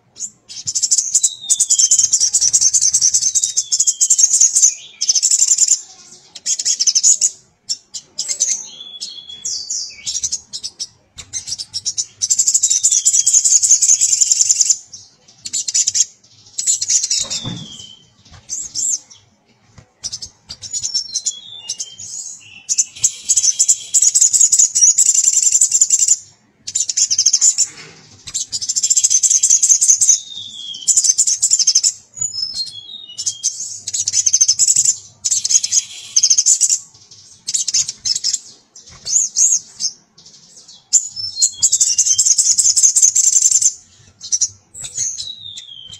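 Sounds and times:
bird trilling song: 0.0 - 19.4, 20.0 - 45.9
brief thud: 17.2 - 17.8.

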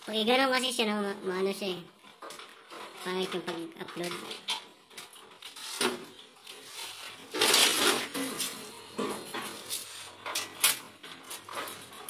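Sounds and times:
scraping rustle of cable: 2.0 - 12.0.

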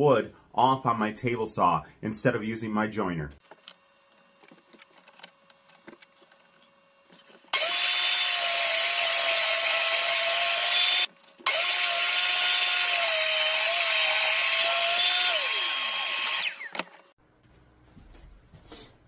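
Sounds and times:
table saw whining: 7.5 - 17.1.

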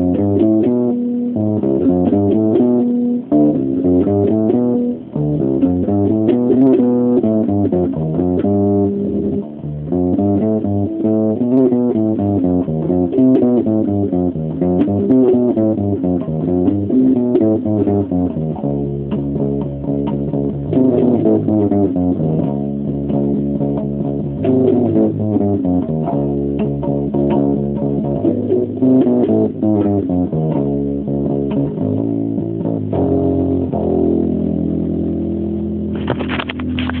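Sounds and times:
electric bass guitar riffs: 0.0 - 37.0
brief scratchy noise: 35.9 - 37.0.

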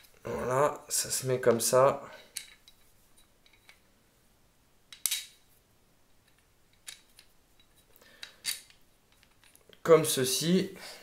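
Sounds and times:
small metal parts clicking: 2.3 - 2.8, 6.2 - 9.8.

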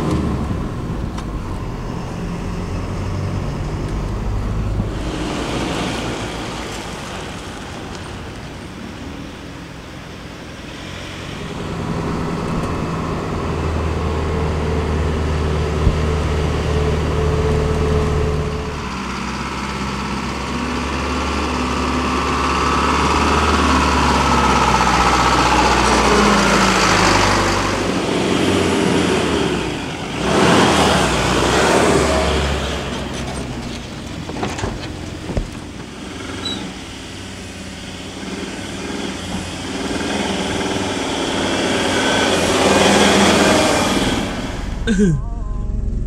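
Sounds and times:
loud rush of noise: 0.0 - 20.4, 39.9 - 46.0
vehicle engines droning: 0.0 - 46.0.

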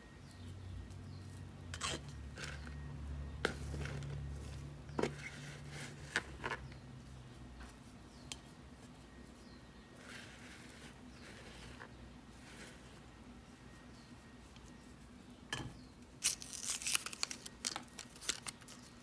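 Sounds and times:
knife scraping soil: 1.7 - 2.7, 5.0 - 6.6, 10.0 - 13.0.

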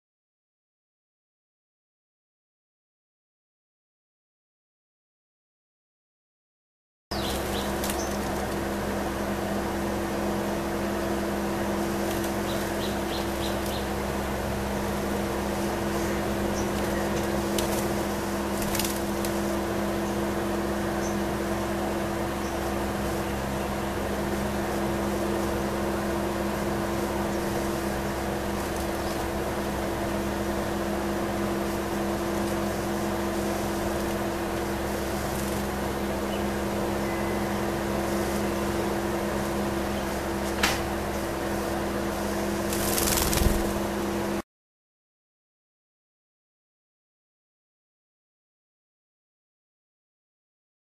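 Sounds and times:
low two-tone machine hum: 7.1 - 44.4.

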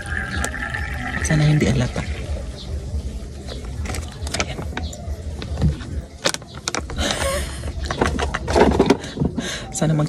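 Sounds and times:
plastic bottle clicks and crinkles: 6.2 - 7.2.

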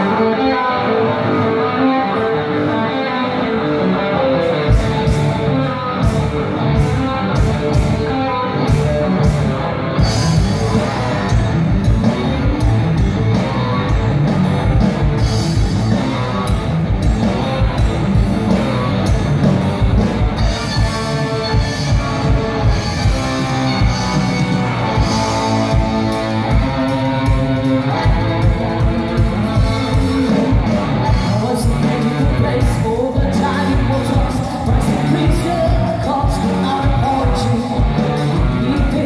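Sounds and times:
bass guitar: 0.0 - 39.0
electric guitar riff: 0.0 - 39.0.

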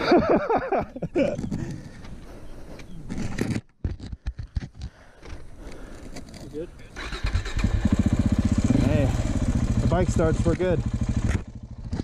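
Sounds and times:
rustling of riding gear: 0.9 - 7.6.

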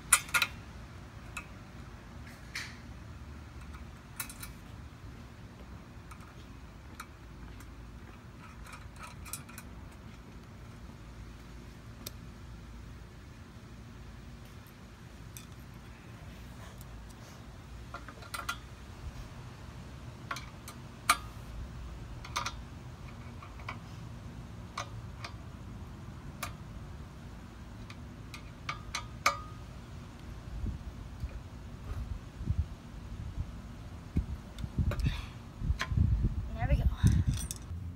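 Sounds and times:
low background rumble: 0.0 - 37.9.

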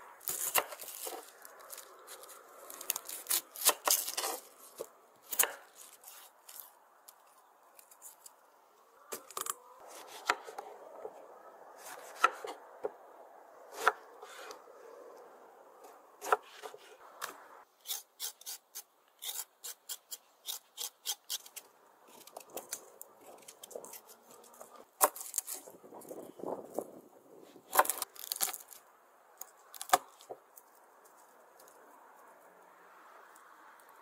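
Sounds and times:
knife scraping board: 13.8 - 14.6, 16.2 - 17.0.

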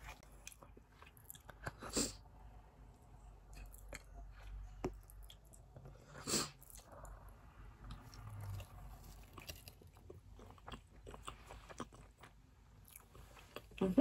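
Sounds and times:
person chewing fries: 0.0 - 2.2, 7.8 - 13.8.

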